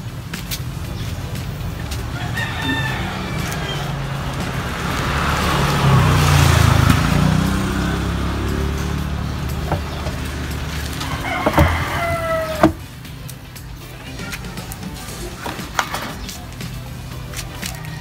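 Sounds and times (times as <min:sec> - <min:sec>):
motor vehicle passing: 0:00.0 - 0:18.0
rooster crowing: 0:02.1 - 0:05.5, 0:10.9 - 0:12.8.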